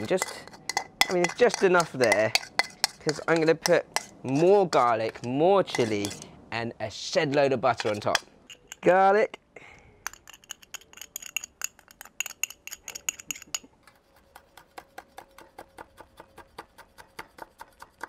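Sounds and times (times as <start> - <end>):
spoon clinking in glass jar: 0.0 - 4.2, 5.7 - 6.2, 7.8 - 8.9, 10.0 - 13.7.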